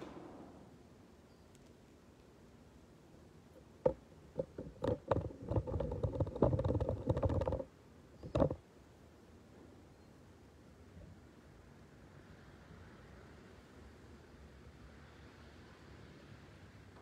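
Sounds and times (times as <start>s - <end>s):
close rubbing and clattering: 3.8s - 8.6s.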